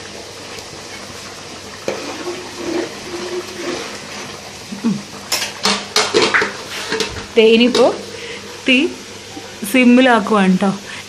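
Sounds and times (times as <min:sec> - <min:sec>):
rice boiling in a pot: 0:00.0 - 0:11.0
ladle stirring: 0:00.4 - 0:04.6, 0:05.3 - 0:08.0.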